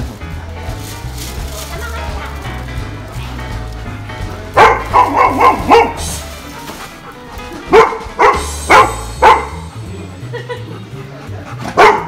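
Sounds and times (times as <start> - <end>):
background music: 0.0 - 12.0
dog barking: 4.6 - 6.1, 7.6 - 9.7, 11.7 - 12.0.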